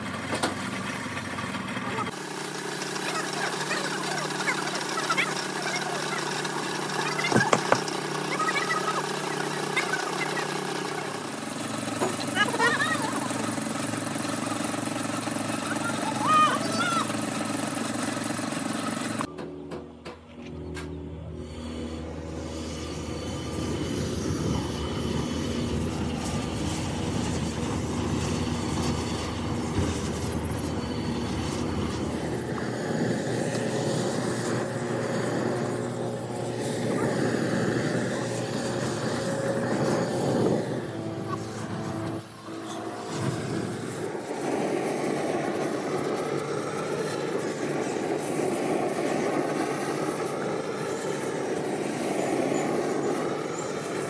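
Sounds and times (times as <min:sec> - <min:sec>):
low hum: 0:19.2 - 0:54.0
foundry rumbling roar: 0:21.0 - 0:54.0
gas burning in flames: 0:21.4 - 0:54.0.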